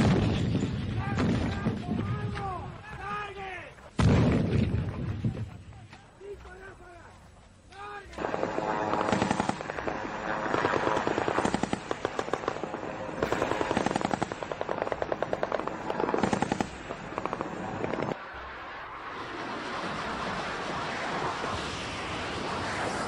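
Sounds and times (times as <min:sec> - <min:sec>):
steady rushing noise: 0:07.6 - 0:23.0
automatic gunfire bursts: 0:08.2 - 0:18.1.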